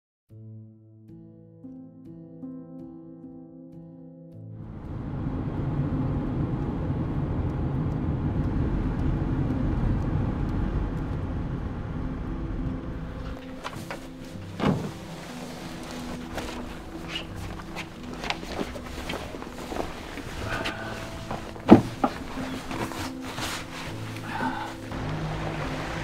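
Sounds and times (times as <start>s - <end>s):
vehicle engine and road rumble: 4.6s - 24.2s, 24.9s - 26.0s
loud thump: 14.6s - 15.0s.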